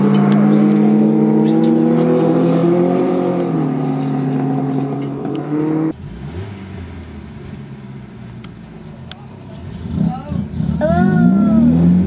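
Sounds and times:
racing car engine revving: 0.0 - 7.8, 9.5 - 12.0.

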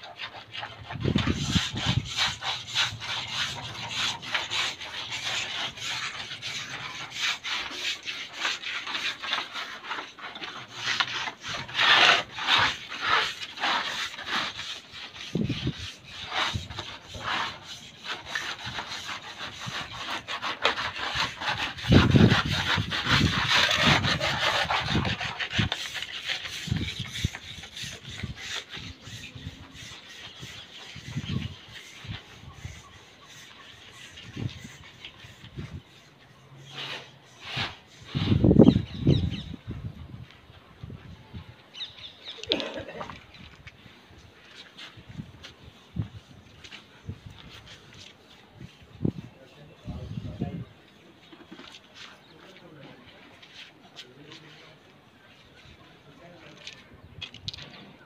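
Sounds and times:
hand tools scraping tile: 0.0 - 39.2.

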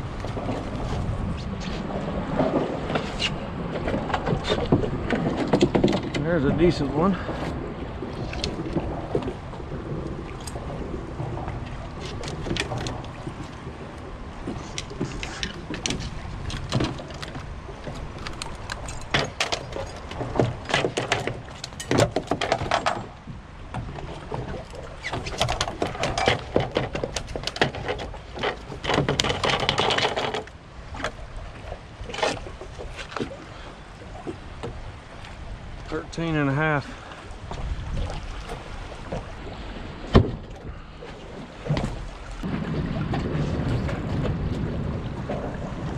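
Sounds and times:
wind noise on microphone: 0.0 - 45.9
fish knocking and slapping on deck: 2.4 - 6.2, 14.4 - 31.2.

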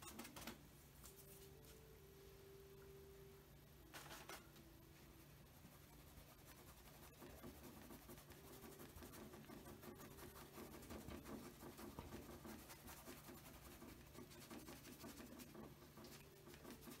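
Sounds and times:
paintbrush scratching on canvas: 5.4 - 17.0.

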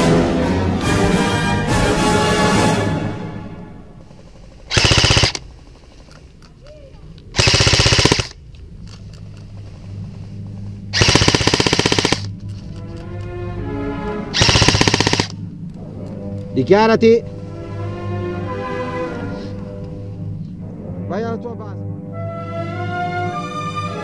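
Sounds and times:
background music: 0.0 - 5.6, 7.3 - 24.0
airsoft guns firing full-auto: 4.5 - 6.0, 7.4 - 8.4, 10.9 - 12.3, 14.4 - 15.4.

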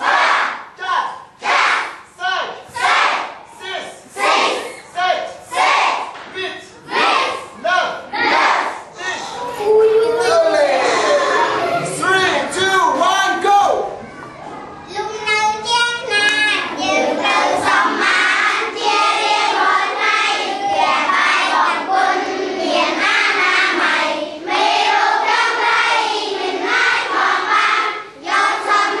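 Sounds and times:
children singing: 16.2 - 29.0.

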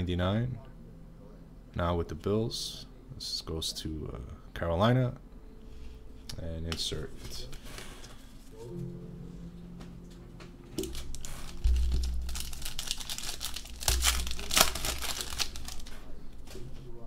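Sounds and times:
foil wrapper tearing and crinkling: 10.8 - 16.5.

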